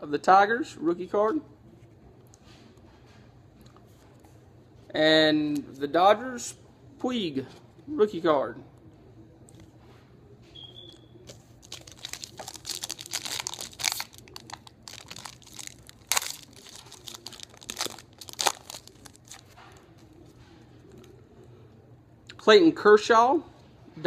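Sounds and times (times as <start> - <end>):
foil wrapper tearing and crinkling: 11.6 - 19.6.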